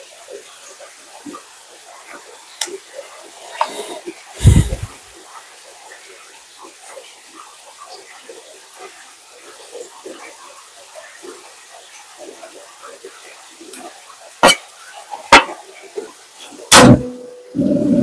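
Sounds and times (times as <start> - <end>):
heavy thump: 4.4 - 5.0, 16.7 - 17.2.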